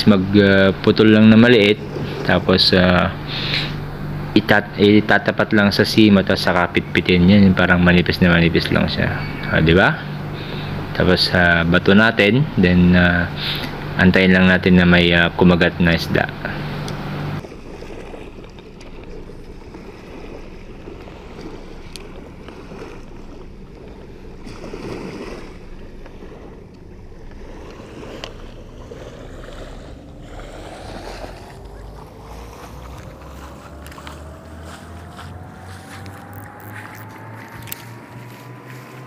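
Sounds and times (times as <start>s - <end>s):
small waves lapping on sand: 0.0s - 9.0s, 16.1s - 39.0s
faint hum rising in pitch: 0.0s - 39.0s
wind on microphone: 17.1s - 39.0s.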